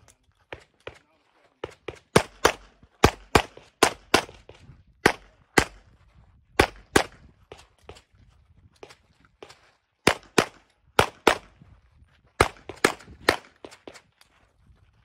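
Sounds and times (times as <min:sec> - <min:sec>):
handgun shots: 0:01.6 - 0:05.8.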